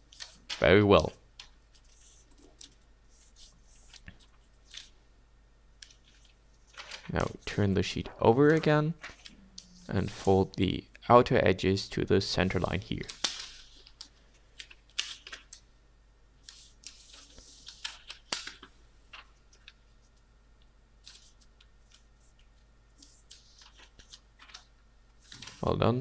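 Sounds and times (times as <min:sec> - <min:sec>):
paper rustling and crackling: 0:05.8 - 0:10.3, 0:23.0 - 0:25.8.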